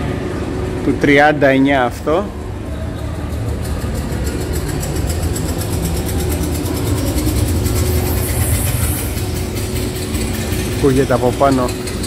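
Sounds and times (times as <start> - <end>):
low engine-like rumble overhead: 0.0 - 12.0
faint fast rattle: 2.6 - 12.0.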